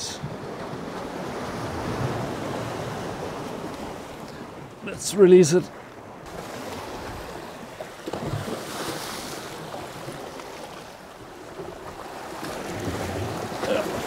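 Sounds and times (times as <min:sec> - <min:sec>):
waves washing against rocks: 0:06.2 - 0:14.0.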